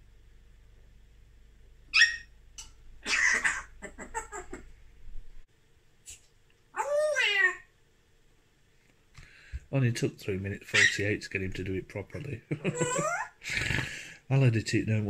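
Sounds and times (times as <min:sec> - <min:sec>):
parrot calling and chattering: 0:01.9 - 0:02.3, 0:03.0 - 0:04.7, 0:06.8 - 0:07.7, 0:10.7 - 0:11.1, 0:12.6 - 0:13.4.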